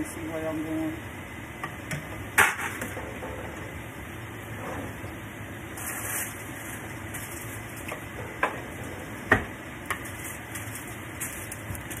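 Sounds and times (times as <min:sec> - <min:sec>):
food deep-frying in oil: 0:05.1 - 0:12.0.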